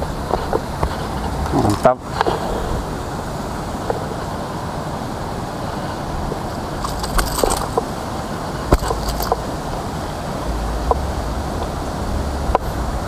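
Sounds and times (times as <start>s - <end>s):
steady outdoor rushing noise: 0.0s - 13.0s
fishing lure clicks and rattles: 6.8s - 7.8s, 8.7s - 9.4s.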